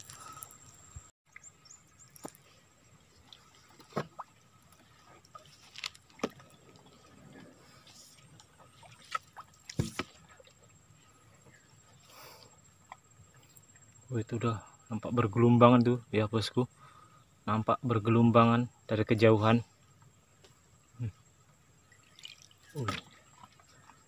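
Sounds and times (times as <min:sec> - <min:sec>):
water dripping from paddle: 0:01.3 - 0:11.2, 0:11.9 - 0:14.2, 0:21.8 - 0:24.0.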